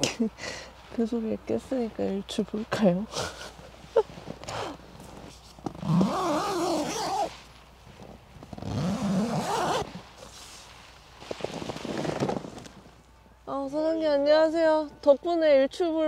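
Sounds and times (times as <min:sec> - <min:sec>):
tent zipper being unzipped: 0:04.1 - 0:13.0.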